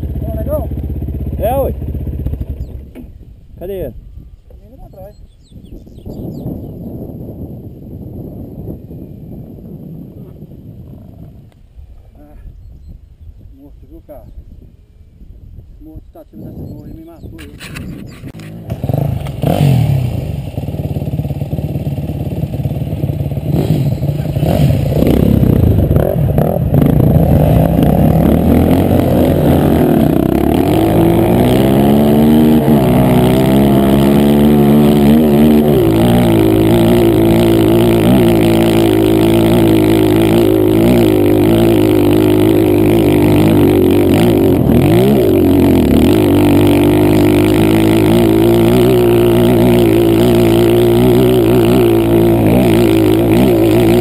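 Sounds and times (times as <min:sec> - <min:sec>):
dirt bike engine revving: 0:18.1 - 0:54.0.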